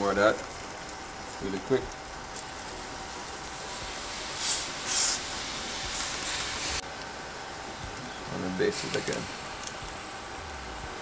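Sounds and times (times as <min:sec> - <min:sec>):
liquid sizzling on a grill: 0:00.0 - 0:11.0.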